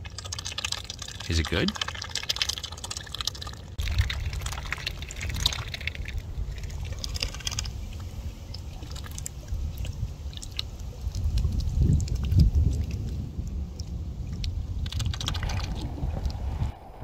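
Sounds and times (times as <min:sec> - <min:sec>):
ducks dabbling in mud and water: 0:00.0 - 0:16.6
wind rumble on microphone: 0:03.8 - 0:17.0.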